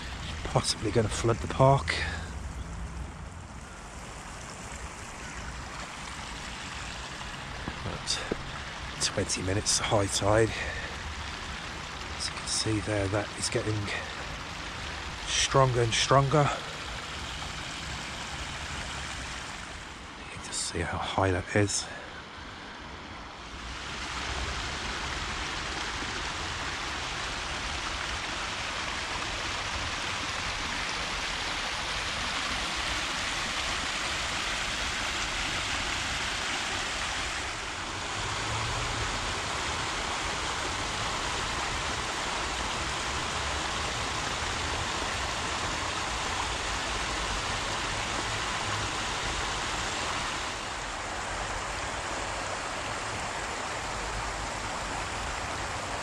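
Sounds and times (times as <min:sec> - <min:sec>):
fast-flowing water rushing: 0:00.0 - 0:56.0.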